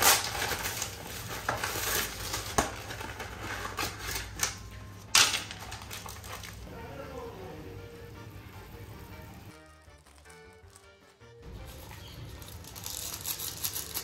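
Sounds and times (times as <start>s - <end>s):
plastic film crinkling and tearing: 0.0s - 6.7s, 9.4s - 14.0s.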